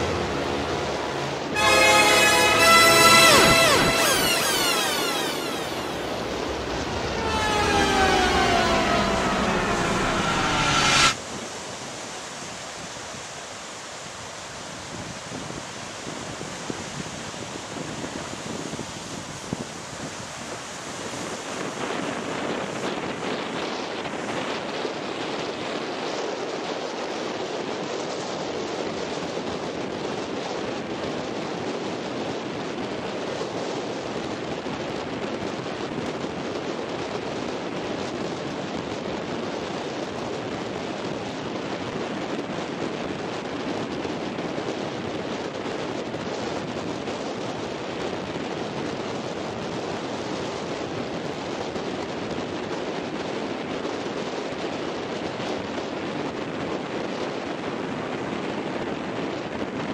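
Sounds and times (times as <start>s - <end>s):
choppy surf: 0.0s - 10.7s
strong wind on microphone: 0.0s - 13.4s, 14.6s - 59.9s.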